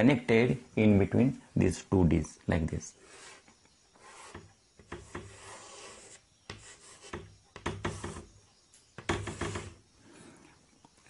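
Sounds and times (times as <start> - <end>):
chalk scraping on chalkboard: 3.0 - 8.4, 9.1 - 9.8.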